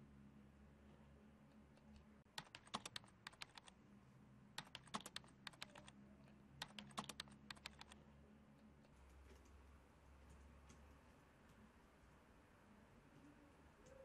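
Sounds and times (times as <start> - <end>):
typing on laptop keyboard: 2.3 - 3.7, 4.6 - 6.0, 6.6 - 8.0.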